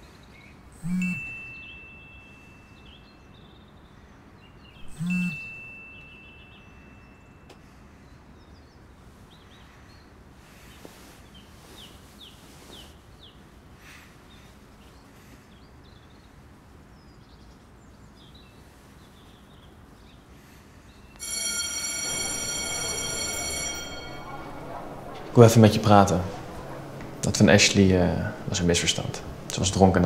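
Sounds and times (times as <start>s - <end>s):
loud steady tone: 0.8s - 2.7s, 4.8s - 7.2s, 21.2s - 29.5s.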